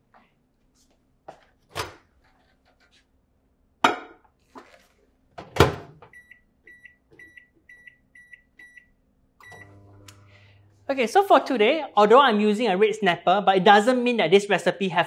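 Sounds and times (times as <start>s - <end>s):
short keypad beeps: 6.1s - 9.8s.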